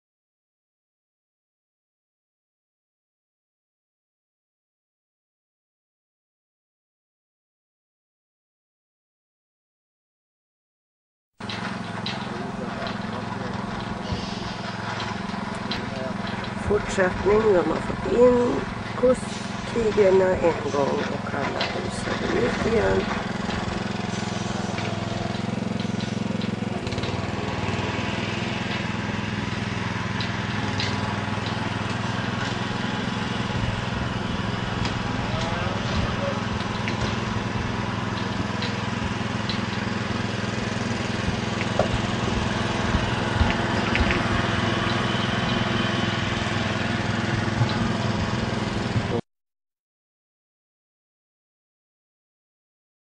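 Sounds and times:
sharp knocks and clanks: 0:11.4 - 0:32.9, 0:34.6 - 0:40.0, 0:41.1 - 0:45.8
engine idling: 0:11.4 - 0:49.2.

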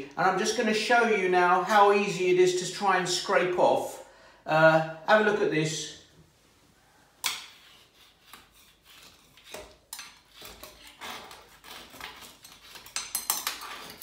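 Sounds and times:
scraper blade scraping sealant: 0:07.4 - 0:14.0.

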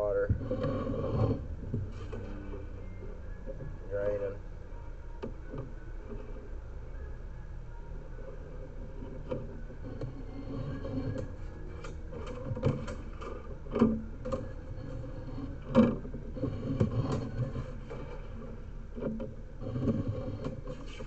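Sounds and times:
low rumble: 0:00.0 - 0:20.6.

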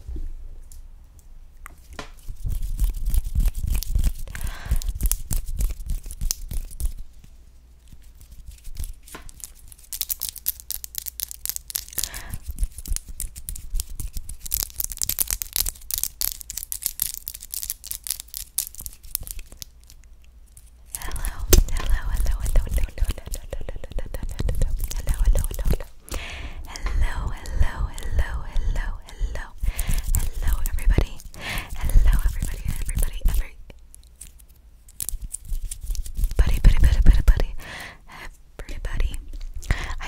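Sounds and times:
fingernails clicking and scratching: 0:08.2 - 0:25.9, 0:29.8 - 0:36.5.

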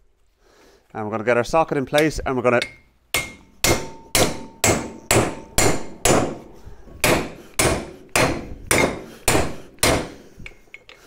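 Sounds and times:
hammer striking metal: 0:02.0 - 0:10.6.

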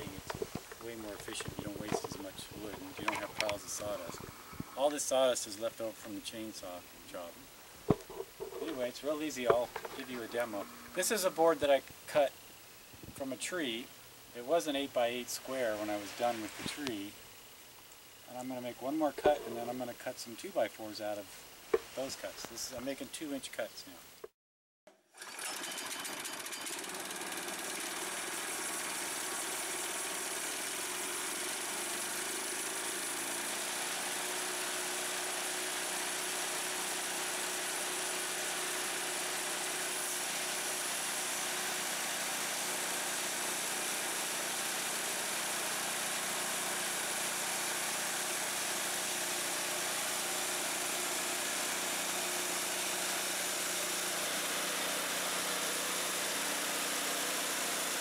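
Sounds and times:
small petrol engine running: 0:00.0 - 0:04.9, 0:07.9 - 0:11.6, 0:25.1 - 0:58.0
band saw blade cutting log: 0:00.0 - 0:05.2, 0:07.9 - 0:11.7, 0:18.4 - 0:19.9, 0:26.8 - 0:58.0.

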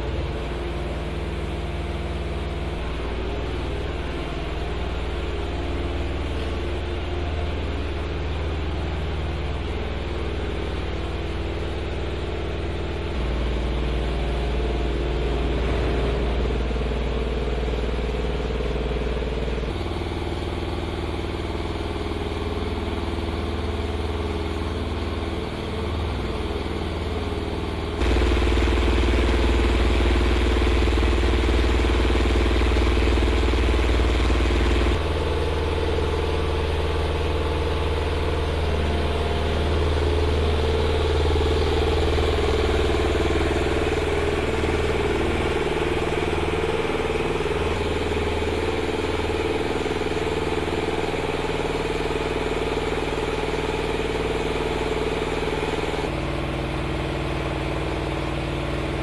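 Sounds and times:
truck engine idling: 0:19.4 - 0:53.2.

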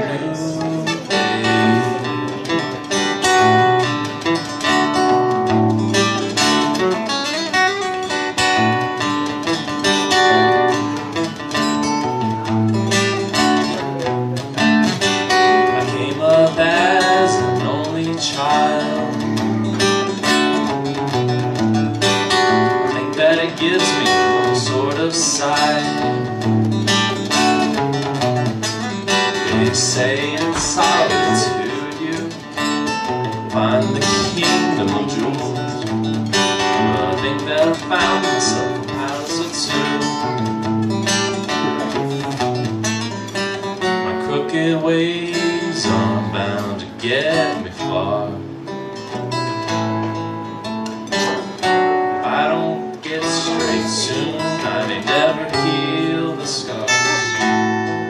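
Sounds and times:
man singing: 0:00.0 - 0:04.2, 0:13.3 - 0:20.7, 0:22.2 - 0:26.6, 0:29.1 - 0:42.2, 0:43.8 - 0:48.6, 0:51.1 - 0:57.8
acoustic guitar: 0:00.0 - 0:58.0.

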